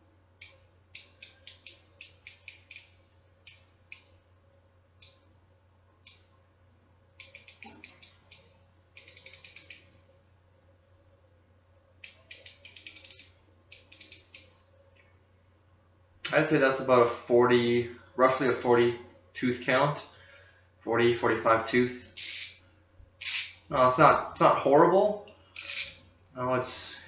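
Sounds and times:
ratchet clicking: 0.4s - 4.1s, 7.2s - 9.8s, 12.0s - 14.5s, 22.2s - 22.6s, 23.2s - 23.6s, 25.6s - 26.0s.

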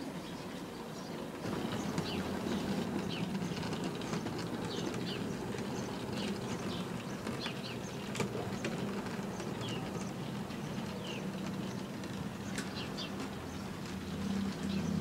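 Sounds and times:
wheels clicking on rail joints: 0.2s - 15.0s.

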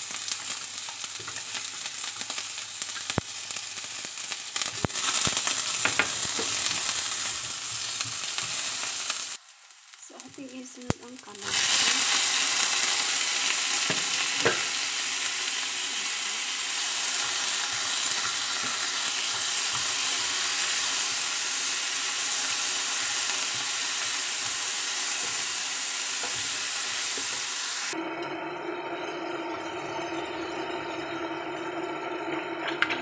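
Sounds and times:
vegetables sizzling in hot oil: 0.0s - 28.0s.

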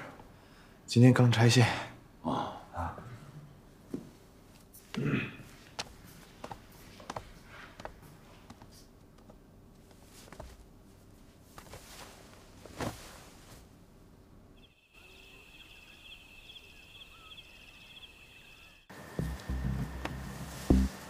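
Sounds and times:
insects chirping in pulsing trill: 14.6s - 20.9s.

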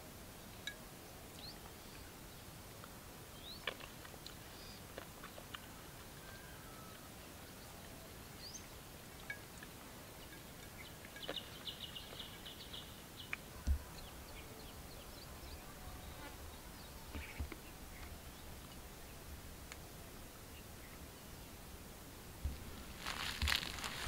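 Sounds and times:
bird chirps: 10.2s - 17.4s.

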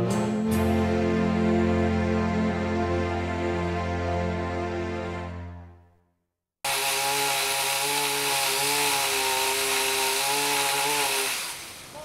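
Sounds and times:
chainsaw running: 6.6s - 11.7s.

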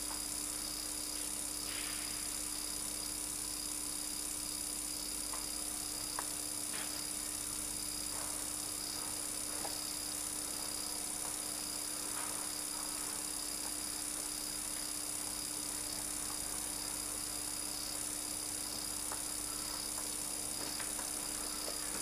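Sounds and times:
steady electrical hum and hiss: 0.0s - 22.0s
faint ticks: 6.1s - 6.9s.

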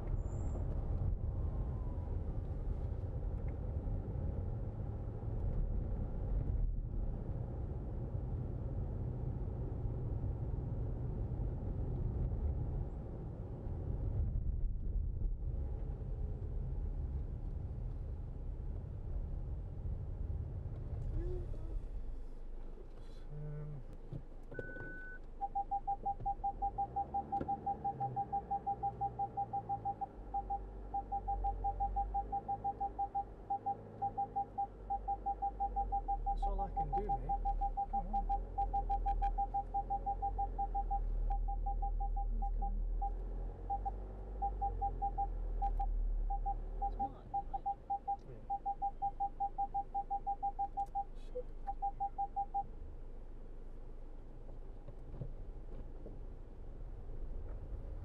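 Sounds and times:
car engine idling: 17.7s - 58.0s
parking sensor beeping rapidly: 24.5s - 52.7s.

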